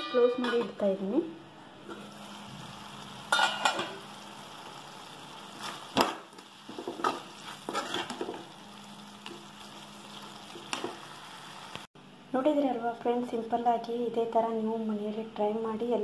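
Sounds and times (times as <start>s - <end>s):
low sizzle: 1.6s - 16.0s
metal ladle scraping pan: 3.3s - 4.0s, 5.5s - 8.5s.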